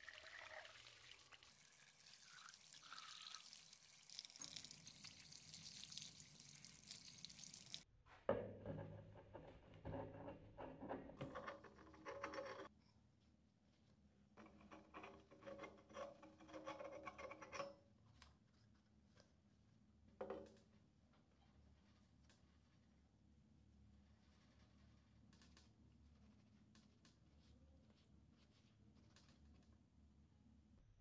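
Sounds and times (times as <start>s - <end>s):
tap water splashing on metal: 0.0s - 7.9s.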